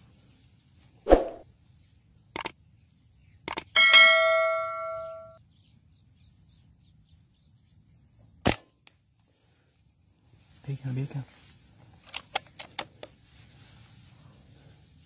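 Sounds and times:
bell ding: 3.8 - 5.4.

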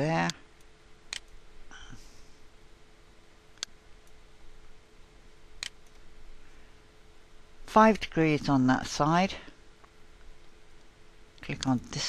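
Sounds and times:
faint steady hum: 0.0 - 12.0
computer mouse clicks: 1.1 - 1.4.

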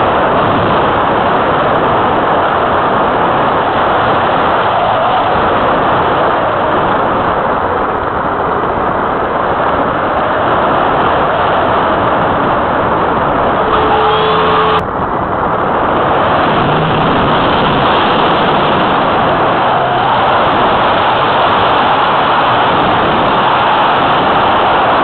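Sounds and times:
wind rush over microphone: 0.0 - 25.0
faint tone: 13.6 - 14.8.

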